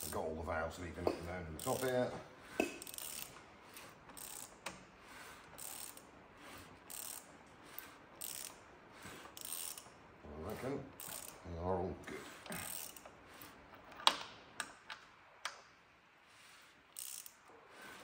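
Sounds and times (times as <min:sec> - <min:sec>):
ratchet clicking: 0:00.0 - 0:00.2, 0:01.6 - 0:10.0, 0:10.9 - 0:11.4, 0:12.4 - 0:15.7, 0:16.8 - 0:18.0.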